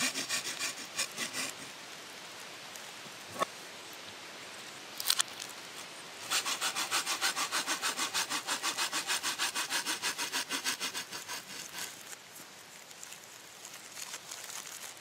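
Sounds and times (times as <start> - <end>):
hand saw cutting wood: 0.0 - 1.7, 6.2 - 12.2.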